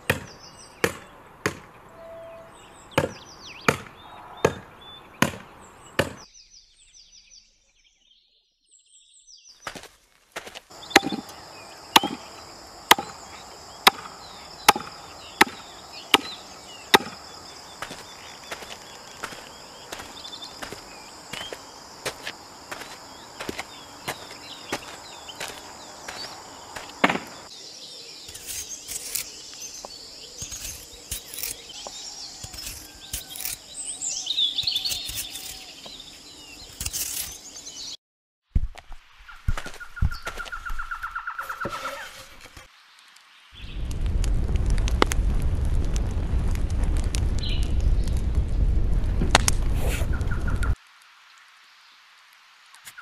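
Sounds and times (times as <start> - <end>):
axe chopping through ribs: 0.0 - 1.7, 3.0 - 6.3, 10.8 - 12.3, 12.9 - 13.2, 13.8 - 14.1, 14.7 - 17.2, 27.0 - 27.3
birds chirping: 0.0 - 38.0, 39.2 - 42.1, 50.0 - 50.8
knife slicing and scraping meat: 28.3 - 29.3, 30.4 - 31.7, 32.4 - 33.6, 34.6 - 35.7, 36.8 - 37.4.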